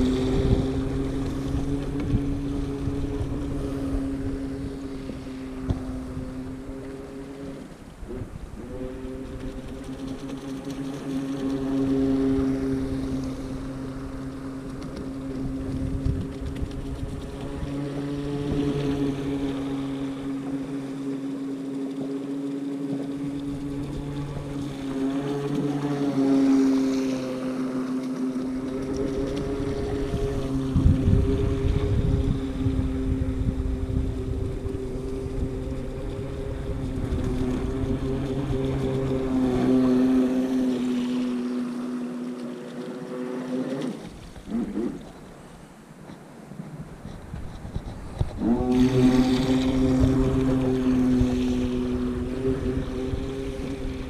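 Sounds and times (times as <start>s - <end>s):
wind gusting on microphone: 0.0s - 10.1s, 11.4s - 20.2s, 28.7s - 41.2s, 46.6s - 54.0s
small motor humming: 0.0s - 46.3s, 47.0s - 54.0s.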